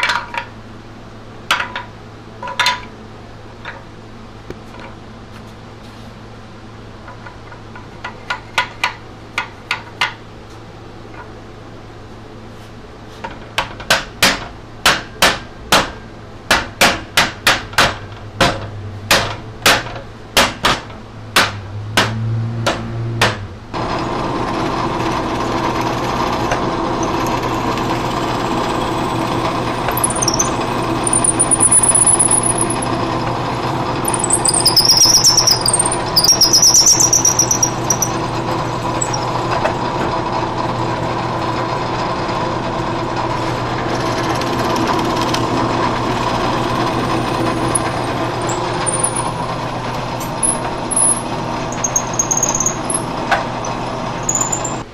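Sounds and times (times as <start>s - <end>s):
drill press running: 23.7s - 54.9s
drill bit squealing: 25.1s - 39.5s, 46.5s - 54.9s.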